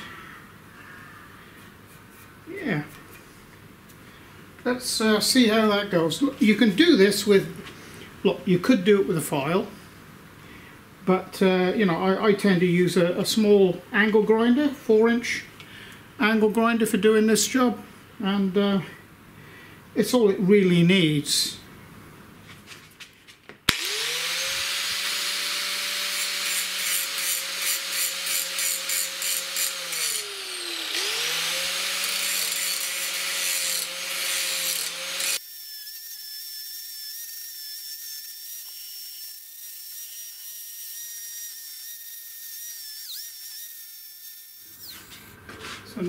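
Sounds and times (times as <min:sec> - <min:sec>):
angle grinder grinding metal: 0:23.7 - 0:45.3.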